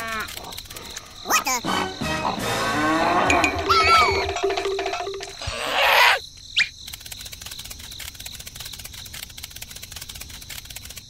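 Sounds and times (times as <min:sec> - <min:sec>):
insects chirping trill: 0:00.0 - 0:11.0.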